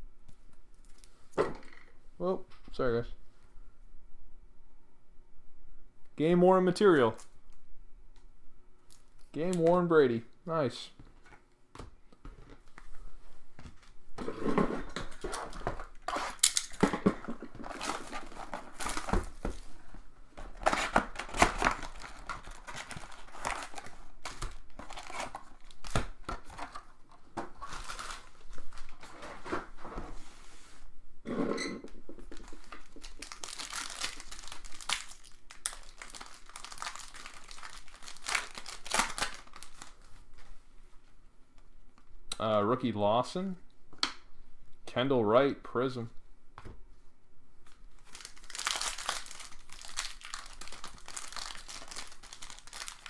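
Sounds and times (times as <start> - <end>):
card pack wrappers crinkling: 17.5 - 19.7, 20.4 - 26.8, 27.5 - 29.1, 32.3 - 40.1, 47.6 - 53.0.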